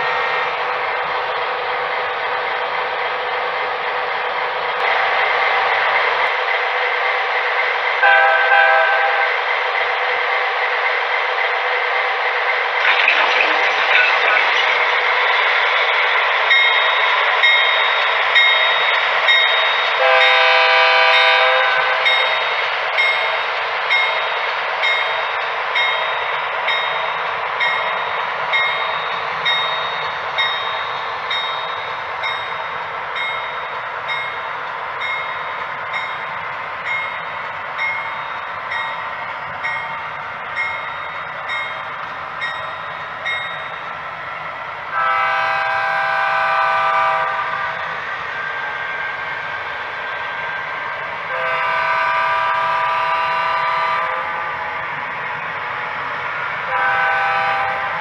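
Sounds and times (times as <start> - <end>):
model train running: 0.0 - 58.0
diesel locomotive horn: 7.9 - 9.5, 20.0 - 22.3, 44.9 - 47.9, 51.3 - 54.8, 56.7 - 58.0
crossing bell dinging: 16.5 - 20.4, 22.0 - 40.0.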